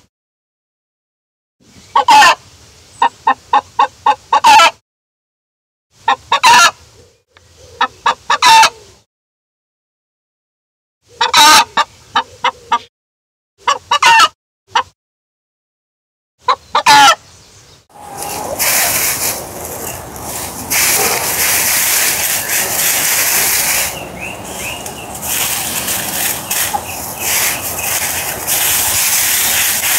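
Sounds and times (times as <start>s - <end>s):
rustling outdoor noise: 1.6s - 4.7s, 17.2s - 29.9s
hen clucking: 2.0s - 2.4s, 3.0s - 4.8s, 6.0s - 6.8s, 7.6s - 8.8s, 11.1s - 12.9s, 13.6s - 14.9s, 16.4s - 17.2s, 18.0s - 29.9s.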